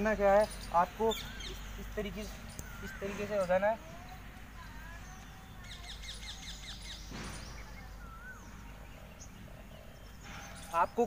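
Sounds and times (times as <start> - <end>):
birds calling: 0.0 - 11.0
whistled bird notes: 2.5 - 11.0.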